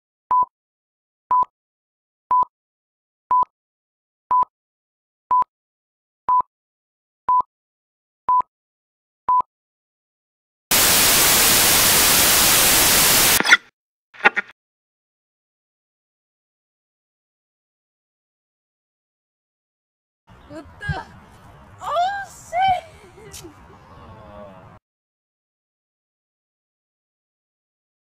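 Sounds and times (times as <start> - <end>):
static hiss: 10.7 - 13.5.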